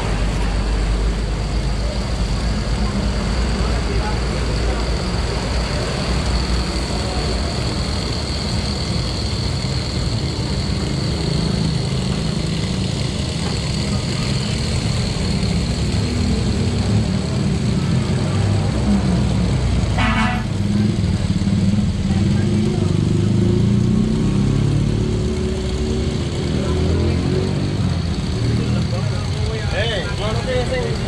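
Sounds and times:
road traffic rumble: 0:00.0 - 0:31.0
vehicle horn toot: 0:20.0 - 0:20.6.

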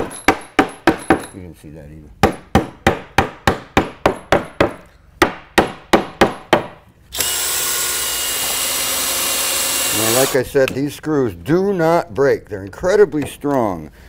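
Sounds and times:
cordless drill driving screw: 0:07.1 - 0:10.4.

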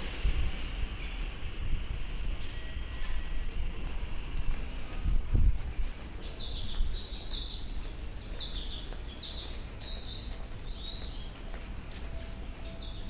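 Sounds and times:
steady low rumble: 0:00.0 - 0:13.0
small birds chirping: 0:03.9 - 0:13.0.

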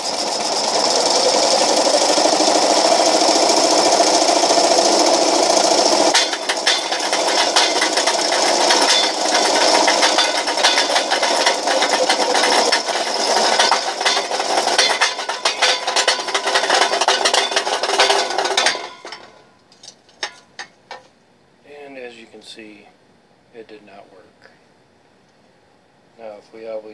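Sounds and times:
can crusher rattling clatter: 0:00.0 - 0:21.0.

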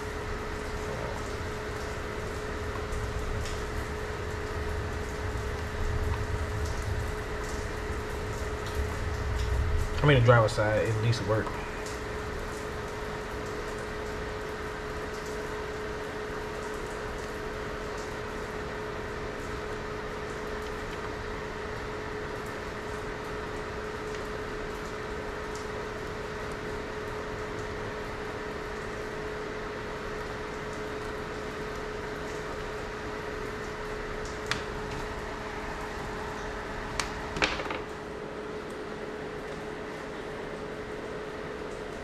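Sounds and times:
constant hum: 0:00.0 - 0:42.0
room noise hiss: 0:00.0 - 0:42.0.

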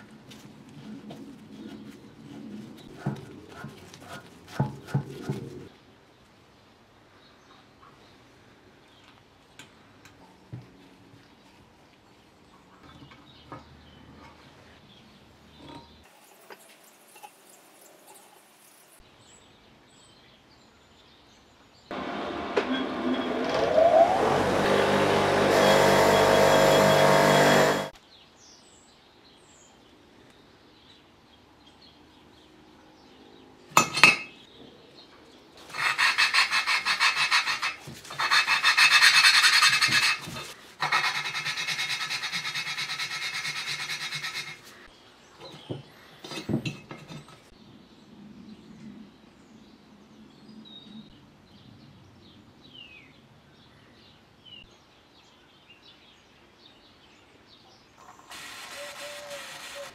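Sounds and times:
bench grinder running: 0:21.9 - 0:27.9.

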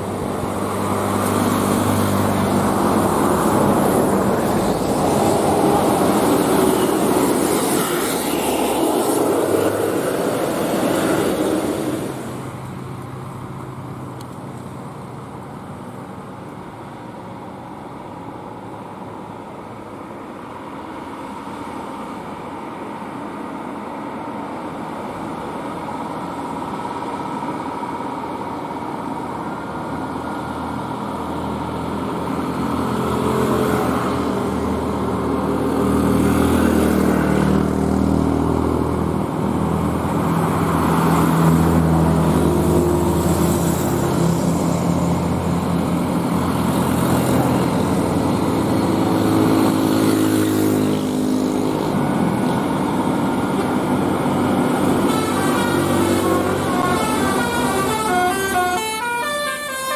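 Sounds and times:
motorcycles passing: 0:00.0 - 0:12.8, 0:31.8 - 0:59.9
diesel truck engine climbing: 0:00.0 - 0:59.9.

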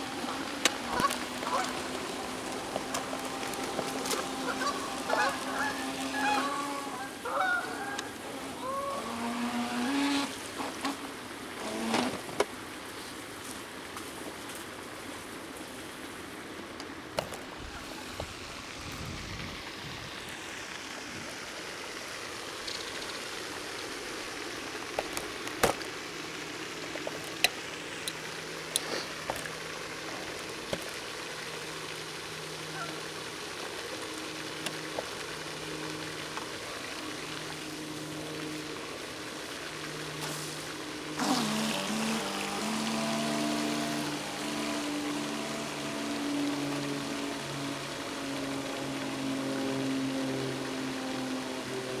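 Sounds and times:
geese honking: 0:00.1 - 0:10.3, 0:32.7 - 0:33.0.

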